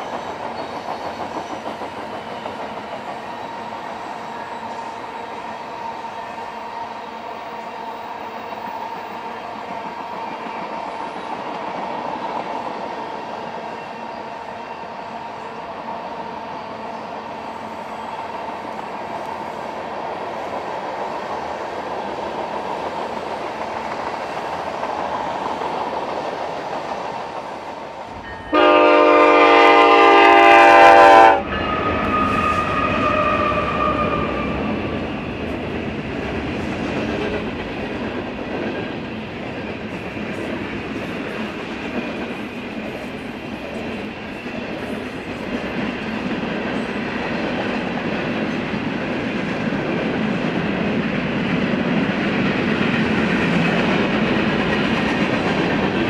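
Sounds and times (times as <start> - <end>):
freight train wheels rumbling: 0.0 - 56.0
locomotive air horn: 28.4 - 34.7.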